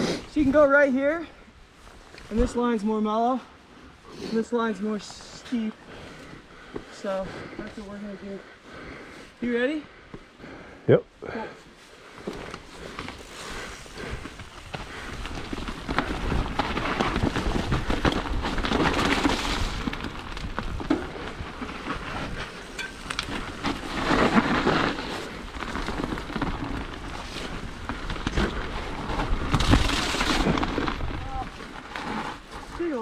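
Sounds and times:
bike tyres crunching through dirt: 11.4 - 33.0
bike chain and frame rattling: 12.2 - 33.0
wind rumbling on microphone: 12.6 - 33.0.

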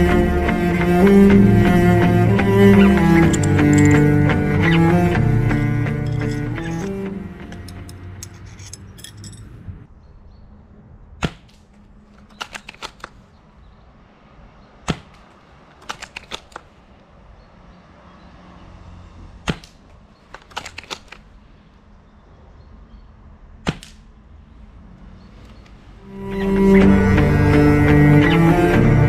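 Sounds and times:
rifle bolt clicks: 3.3 - 4.0, 12.2 - 13.2, 15.8 - 16.7, 19.6 - 21.3.

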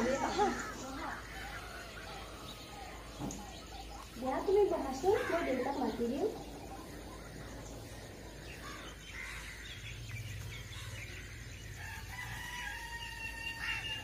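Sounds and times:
rooster crowing: 0.0 - 3.0, 11.7 - 14.0
small birds chirping: 0.0 - 14.0.

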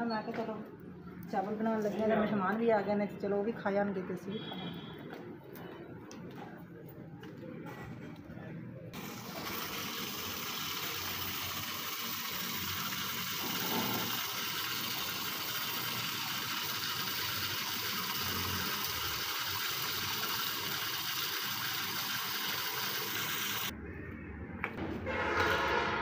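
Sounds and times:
tap water running into metal plate: 9.0 - 23.7.

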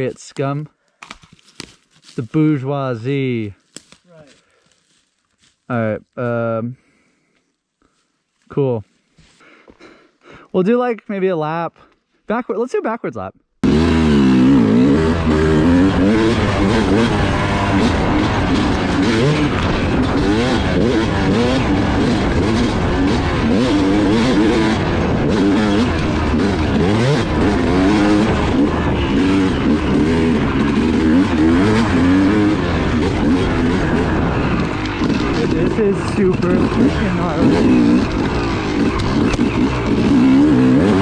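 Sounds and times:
dirt bike engine revving: 13.6 - 41.0.

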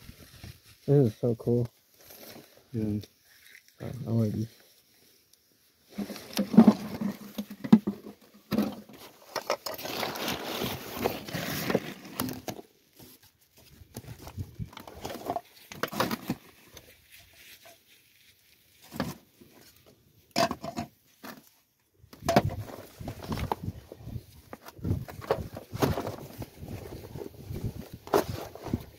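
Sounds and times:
plastic sheeting crackling: 9.8 - 12.2.

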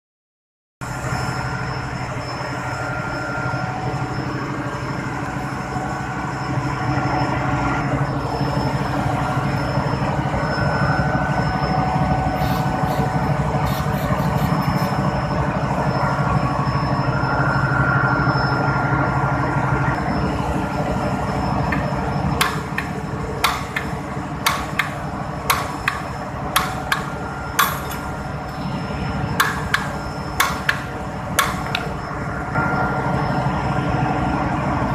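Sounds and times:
machinery hum: 0.8 - 34.9
aerosol spray hissing: 12.4 - 14.6
hammer blows on metal: 22.4 - 28.1.

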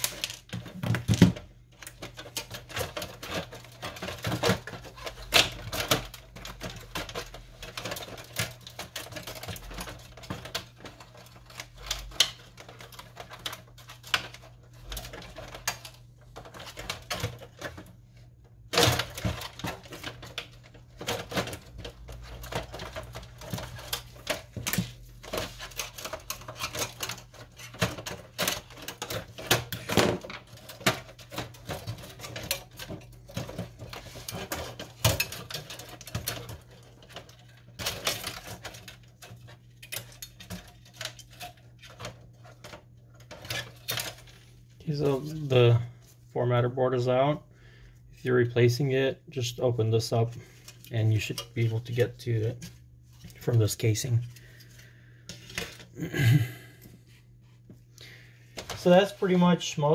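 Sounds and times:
plastic printer parts clicking and snapping: 0.0 - 45.5.

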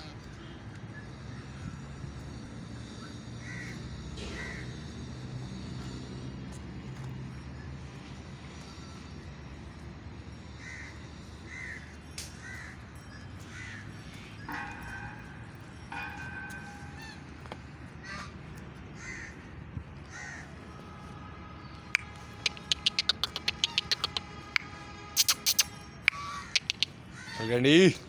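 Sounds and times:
crows cawing: 3.3 - 6.1, 10.5 - 20.8, 26.1 - 28.0.

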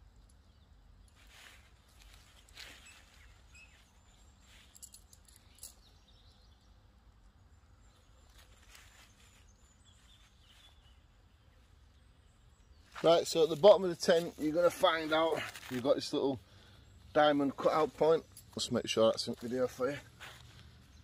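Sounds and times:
soft clicks and rustles: 0.1 - 6.0.

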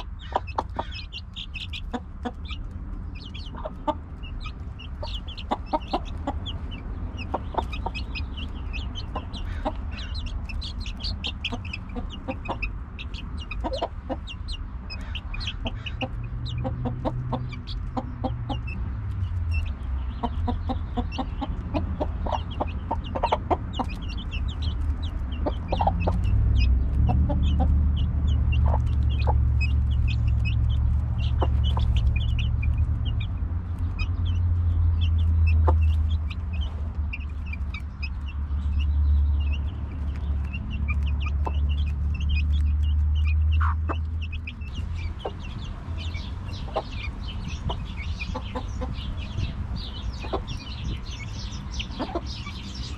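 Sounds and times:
chicks peeping: 0.0 - 52.9
hen clucking: 0.0 - 52.9
sharp pecking taps: 39.5 - 45.7.

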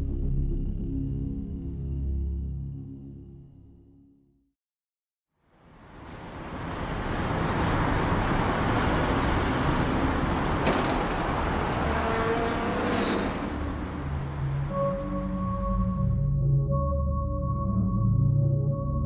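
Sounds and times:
rush of passing vehicles: 5.5 - 15.6.

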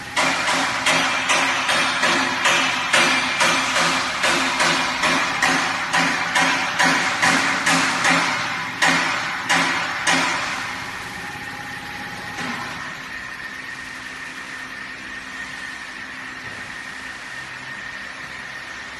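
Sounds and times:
sharp mechanical knocks: 0.0 - 10.8
pump running with high whine: 0.0 - 18.9.

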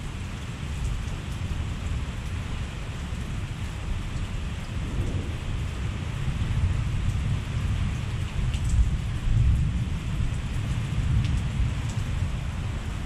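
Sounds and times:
heavy rain falling: 0.0 - 13.0
low thunder rumble: 4.4 - 12.6.

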